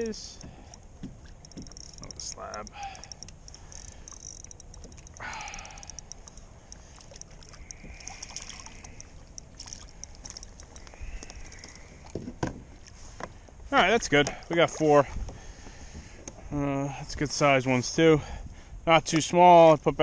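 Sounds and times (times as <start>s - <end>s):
water sloshing against hull: 0.0s - 16.5s
fish splashing at the surface: 2.7s - 10.8s.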